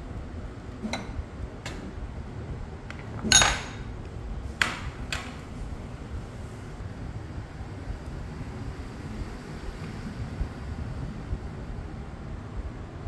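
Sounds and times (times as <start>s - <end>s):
low background noise: 0.0s - 13.0s
kitchenware clinking: 2.9s - 3.9s.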